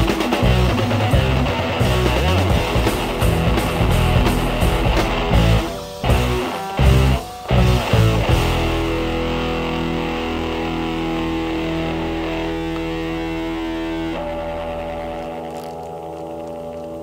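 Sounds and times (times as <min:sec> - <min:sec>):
rock music on electric guitar: 0:00.0 - 0:17.0.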